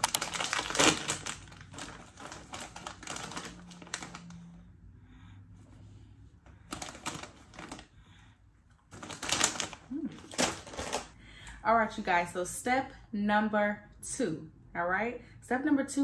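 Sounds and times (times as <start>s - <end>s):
snack bag crinkling: 0.0s - 4.3s, 8.9s - 11.2s.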